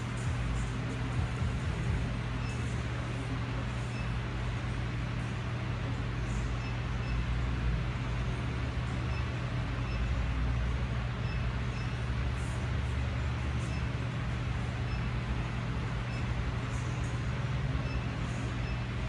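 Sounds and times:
low mechanical hum: 0.0s - 19.0s
short electronic beeps: 9.1s - 10.2s, 11.2s - 12.0s, 13.6s - 14.0s, 14.9s - 16.4s, 17.8s - 18.9s.

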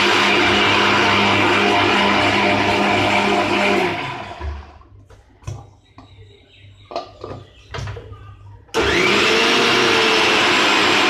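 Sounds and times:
mixer grinder running: 0.0s - 4.8s, 8.7s - 11.0s.

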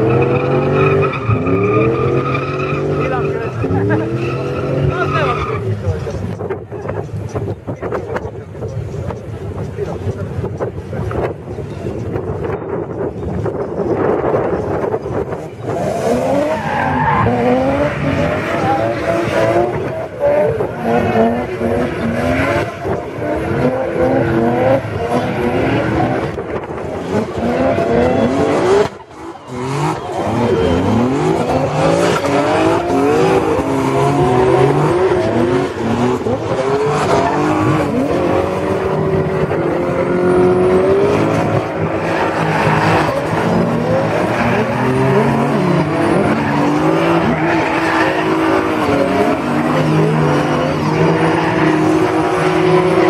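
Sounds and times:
tyres squealing on tarmac: 0.0s - 6.3s, 15.6s - 26.4s, 27.0s - 53.0s
car engines revving hard: 0.0s - 53.0s.

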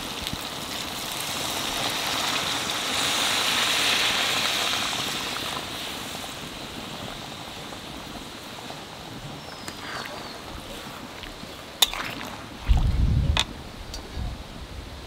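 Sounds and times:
water pouring into curry: 9.8s - 12.9s.

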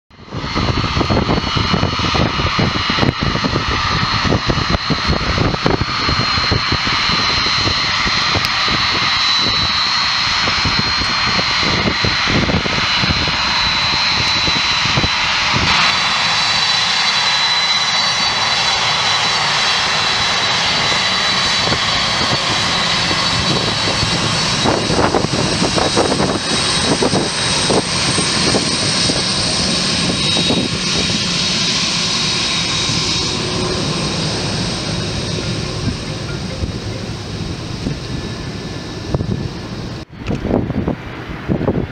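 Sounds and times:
jet engines rushing: 0.1s - 41.9s.

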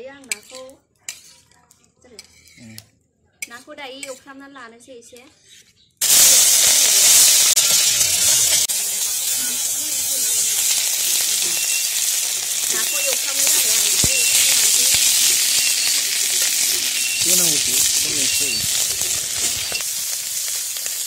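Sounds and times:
fish sizzling in hot oil: 6.0s - 21.0s.

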